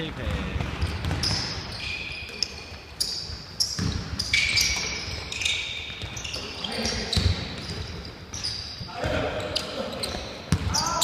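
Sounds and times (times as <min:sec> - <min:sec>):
shoes squeaking on hardwood floor: 0:00.0 - 0:11.0
basketball bouncing: 0:00.1 - 0:01.8, 0:03.3 - 0:08.4, 0:10.1 - 0:11.0.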